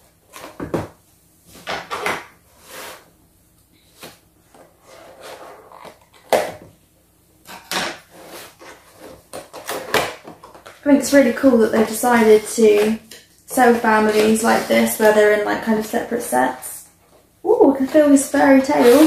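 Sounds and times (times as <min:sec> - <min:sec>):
cardboard scraping and rustling: 0:08.0 - 0:10.6, 0:17.8 - 0:19.0.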